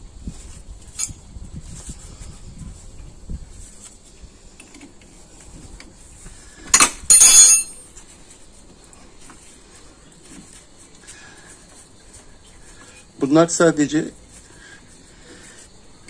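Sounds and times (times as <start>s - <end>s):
sharp metallic clanks: 6.7s - 7.9s
spanners clinking on metal: 6.8s - 7.9s.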